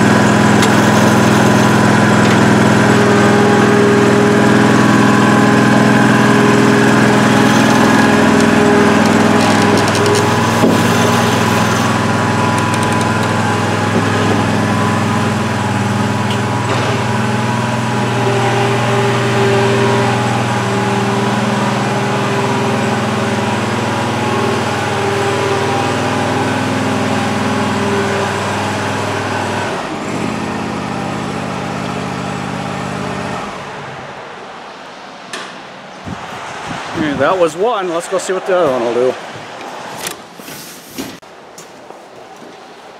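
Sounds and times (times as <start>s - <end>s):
mower engine running: 0.0s - 34.3s.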